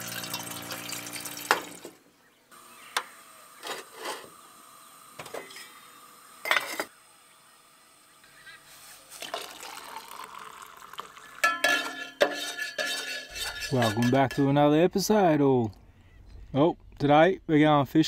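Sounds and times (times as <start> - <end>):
tap water pouring into saucepan: 0.0 - 1.9, 9.1 - 12.1.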